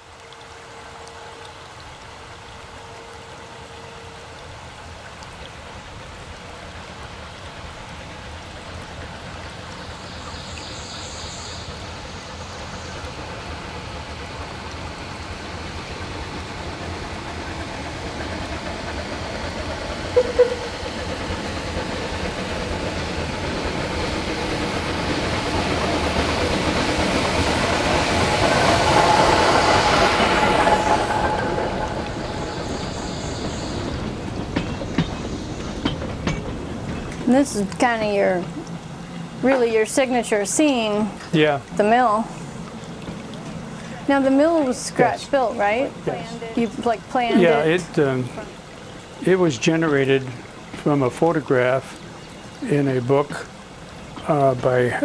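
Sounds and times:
model steam locomotive running: 0:00.0 - 0:55.0
brief double tone: 0:20.2 - 0:20.7.

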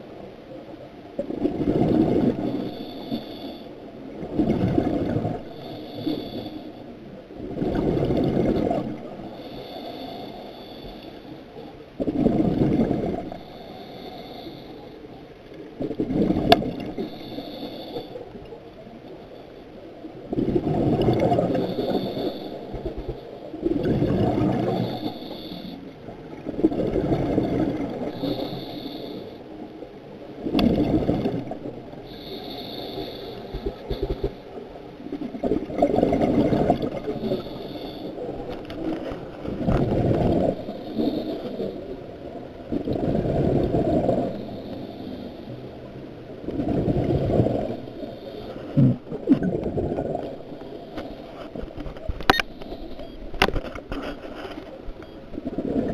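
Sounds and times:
exhaled bubbles rushing underwater: 0:01.2 - 0:03.2, 0:04.0 - 0:05.7, 0:07.3 - 0:09.3, 0:12.0 - 0:13.6, 0:15.7 - 0:17.4, 0:19.9 - 0:28.7, 0:30.3 - 0:32.1, 0:35.0 - 0:37.6, 0:39.5 - 0:44.7, 0:46.2 - 0:50.7, 0:55.3 - 0:55.9
regulator hiss: 0:17.0 - 0:18.2, 0:21.6 - 0:22.8, 0:28.0 - 0:29.6, 0:32.0 - 0:34.6, 0:37.1 - 0:38.4.

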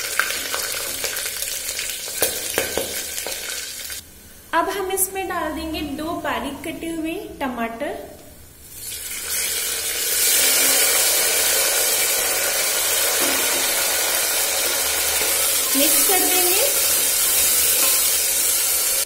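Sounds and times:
tomatoes sizzling in hot oil: 0:00.0 - 0:04.0, 0:08.6 - 0:19.0.

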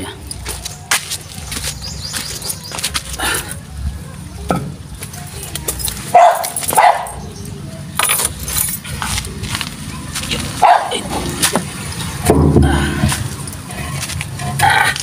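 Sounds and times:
dog barking: 0:06.1 - 0:07.2, 0:10.6 - 0:11.0.

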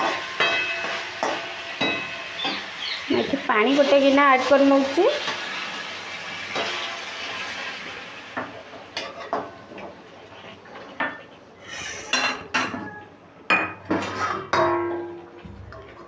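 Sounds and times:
metal spatula scraping a pan: 0:00.0 - 0:07.8, 0:09.0 - 0:12.4, 0:13.9 - 0:16.0
water sizzling in hot pan: 0:00.0 - 0:12.2.

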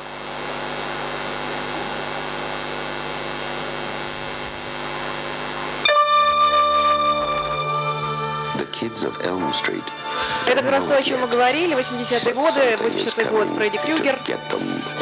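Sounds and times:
hissing drone: 0:00.0 - 0:15.0
loud sustained chord: 0:00.0 - 0:15.0.

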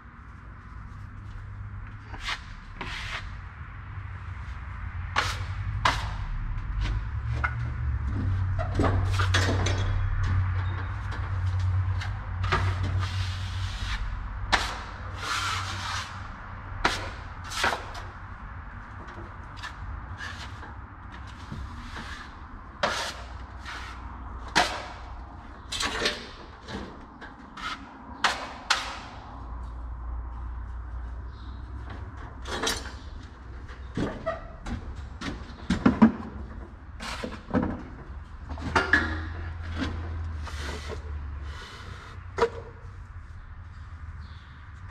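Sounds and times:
taping knife scraping compound: 0:02.1 - 0:03.4.

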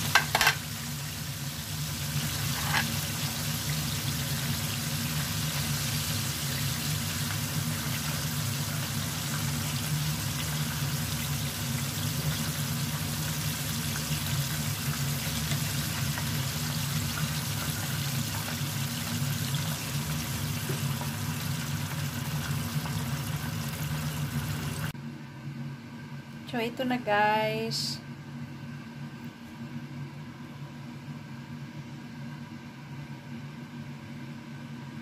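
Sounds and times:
chicken frying in hot oil: 0:00.0 - 0:24.9.

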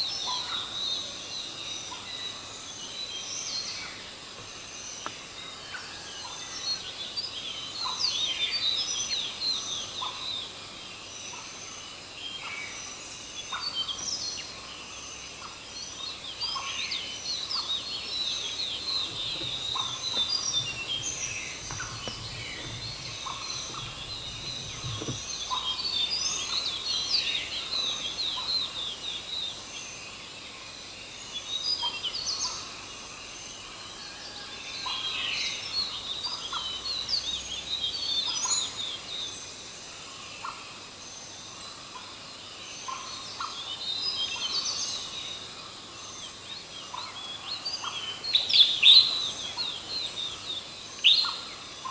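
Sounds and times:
small birds chirping: 0:11.4 - 0:30.2, 0:42.8 - 0:51.9.

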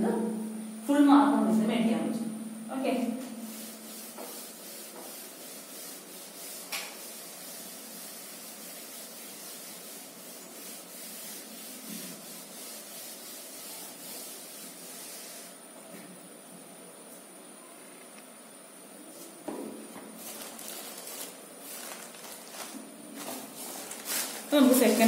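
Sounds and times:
duster wiping a chalkboard: 0:03.0 - 0:15.6, 0:20.1 - 0:25.0.

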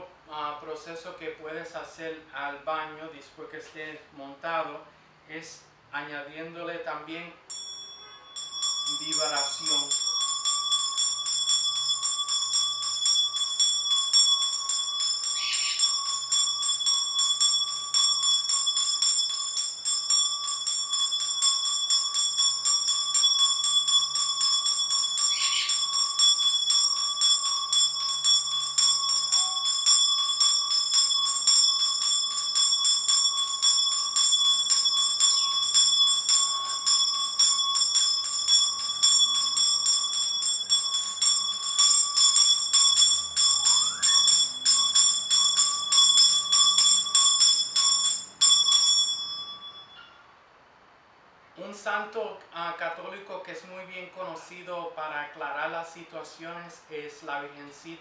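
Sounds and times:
hand bell ringing: 0:07.5 - 0:50.2.

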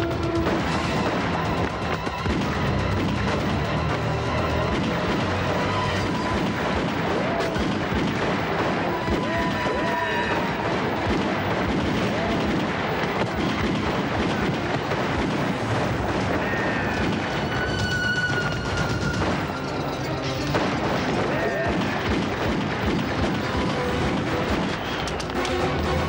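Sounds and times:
dramatic background music: 0:00.0 - 0:26.0
pistol shots: 0:00.0 - 0:26.0
bullet impacts: 0:20.2 - 0:25.6.

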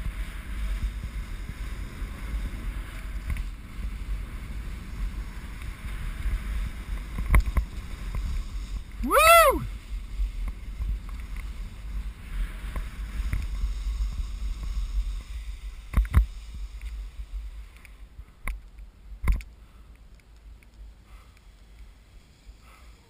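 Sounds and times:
skis swishing through slush: 0:00.0 - 0:09.0, 0:09.7 - 0:18.1
wind rumbling on microphone: 0:00.0 - 0:23.0.

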